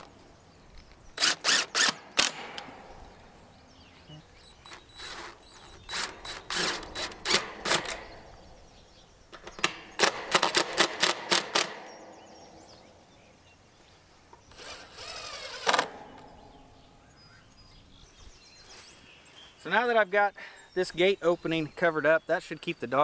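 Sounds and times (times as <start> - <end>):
cordless drill whirring: 1.2 - 2.4, 4.6 - 8.1, 14.5 - 15.9.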